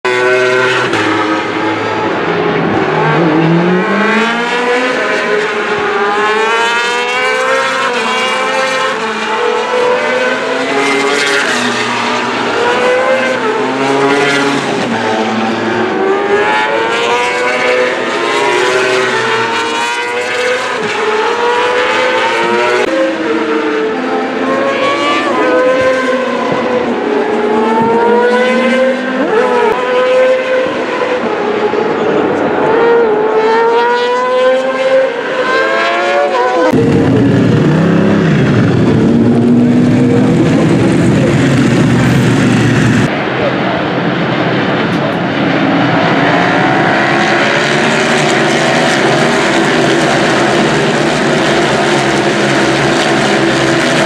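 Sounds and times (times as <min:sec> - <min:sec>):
superbike engines revving: 0:35.7 - 0:43.5.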